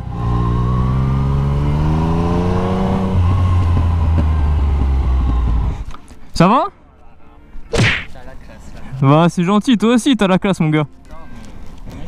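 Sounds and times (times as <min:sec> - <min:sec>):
motorcycle engine accelerating: 0:00.0 - 0:05.8.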